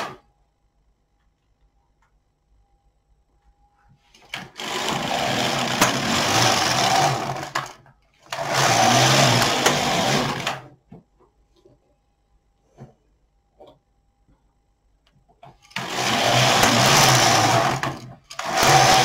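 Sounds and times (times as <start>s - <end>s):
knitting machine carriage running: 4.2s - 10.7s, 15.6s - 19.0s.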